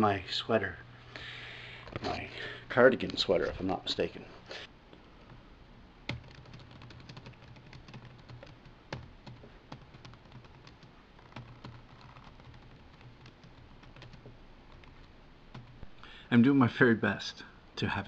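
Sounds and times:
low steady hum: 0.0 - 18.0
typing on laptop keyboard: 6.1 - 15.8.

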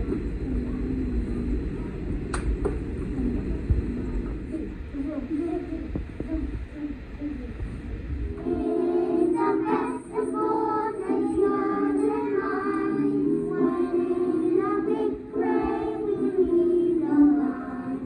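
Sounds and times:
children singing: 8.4 - 18.0.

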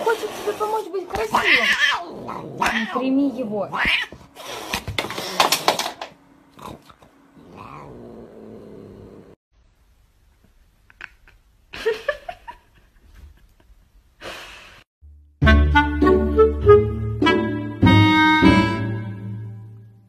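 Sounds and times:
brush pulled through fur: 0.0 - 1.3
cat hissing and yowling: 1.1 - 5.7, 6.6 - 9.4.

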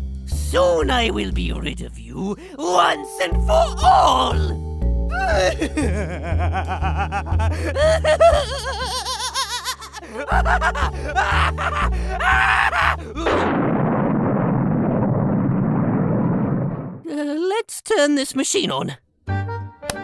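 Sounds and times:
cartoon maniacal cackling laugh: 5.6 - 13.3
dramatic background music: 9.9 - 13.2.

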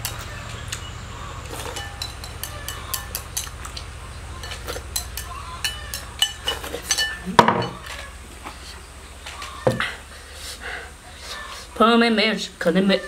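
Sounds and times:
chopsticks clinking on rice bowl: 1.5 - 8.0.

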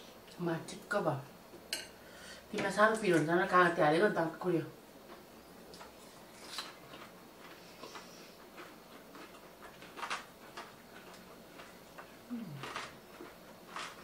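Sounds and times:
chewing with lip smacks: 5.1 - 14.0.

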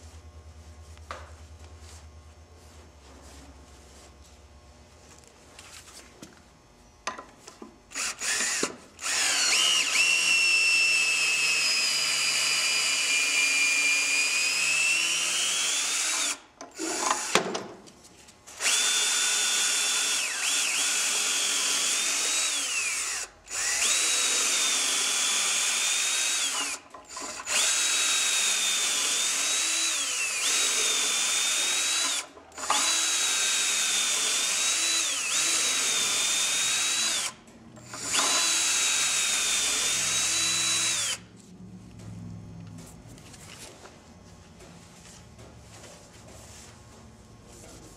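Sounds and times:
cordless drill motor whine: 7.9 - 17.4, 18.5 - 41.3.

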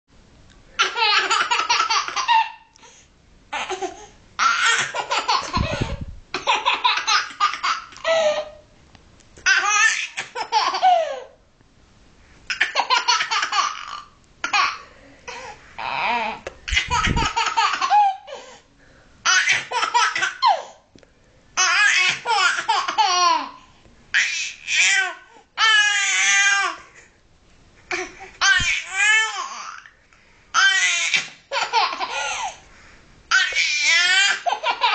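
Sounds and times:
baby laughing: 0.8 - 2.7, 3.5 - 8.6, 9.4 - 11.4, 12.5 - 18.4, 19.2 - 20.8, 21.6 - 23.6, 30.6 - 32.6, 33.3 - 34.9.

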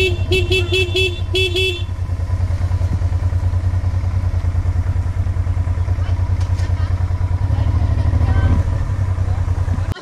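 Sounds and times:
motorcycle engine at low revs: 0.0 - 10.0.

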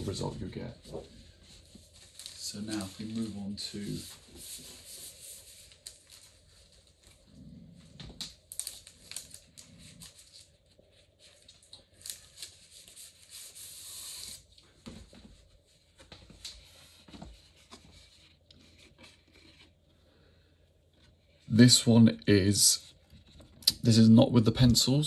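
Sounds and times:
paper rustling and crackling: 0.0 - 7.2, 8.1 - 19.8.

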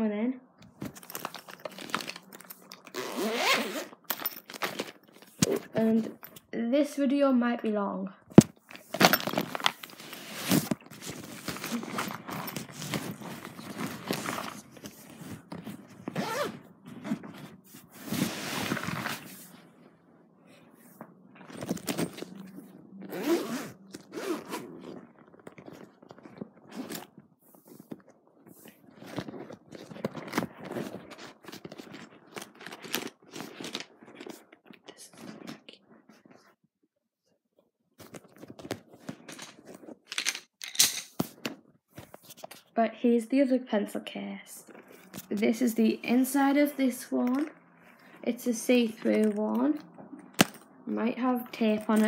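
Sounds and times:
zip being pulled: 2.8 - 4.0, 16.0 - 19.4, 23.0 - 25.1
pencil case scraping and knocking: 8.4 - 19.5, 21.4 - 22.5, 29.0 - 34.4.

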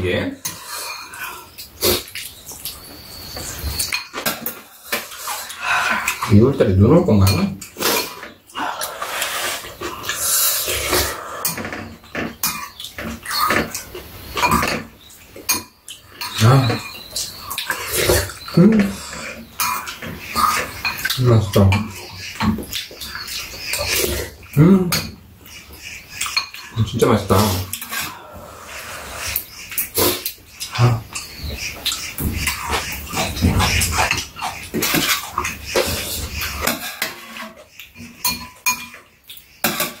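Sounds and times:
eating noises: 0.2 - 40.0
cutlery clinking on bowls: 0.4 - 1.7, 3.6 - 6.3, 7.2 - 8.4, 10.9 - 24.2, 24.9 - 25.2, 26.2 - 26.8, 30.6 - 40.0
noodles slurped and chewed: 7.6 - 11.8, 15.9 - 24.6, 27.4 - 38.2
spoons clinking against bowls: 35.8 - 40.0.

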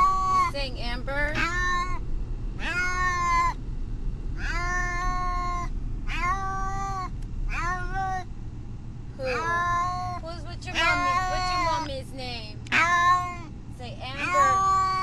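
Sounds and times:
cat meowing: 0.0 - 0.5, 1.4 - 2.0, 2.6 - 3.6, 4.4 - 8.2, 9.3 - 11.8, 12.7 - 13.5, 14.2 - 15.0.

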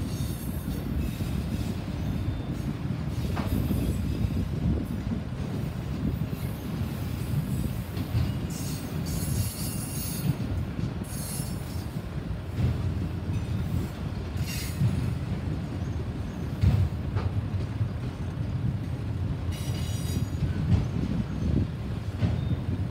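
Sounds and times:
train wheels rumbling on rail: 0.0 - 22.9.

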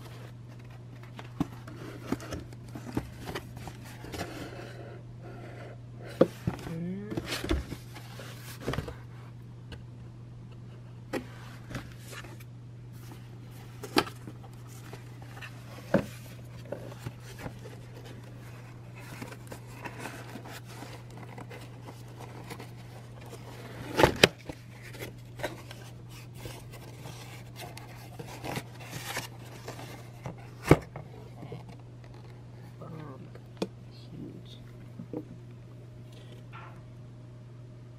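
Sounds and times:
cardboard box being unpacked: 0.0 - 4.7, 11.2 - 32.2
steady low hum: 0.0 - 37.9.

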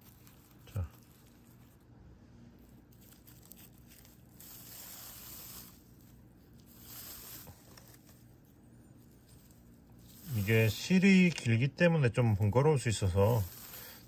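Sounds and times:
yarn rasping through stitches: 3.2 - 8.0, 9.9 - 11.2, 12.2 - 14.0.

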